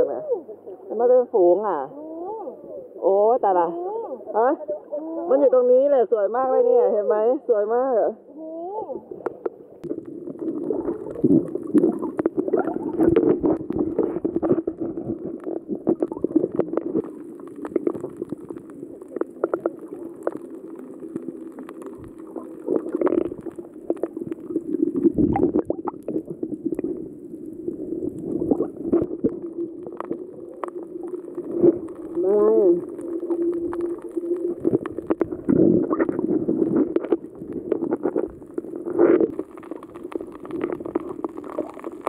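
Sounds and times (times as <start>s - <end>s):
muffled underwater gurgling: 8.2s - 42.0s
small clicks and crackles: 9.2s - 42.0s.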